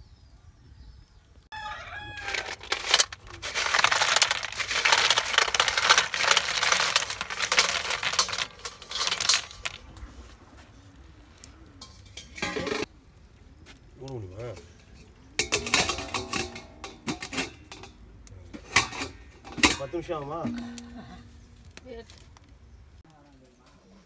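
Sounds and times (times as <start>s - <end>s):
rooster crowing: 1.5s - 2.6s
snail shells clattering into water: 2.1s - 9.9s.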